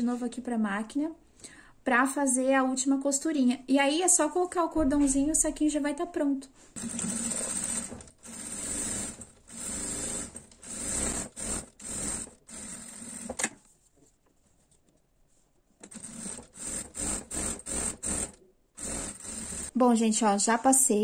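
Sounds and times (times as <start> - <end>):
sewing machine stitching: 6.8 - 13.6, 15.8 - 19.7.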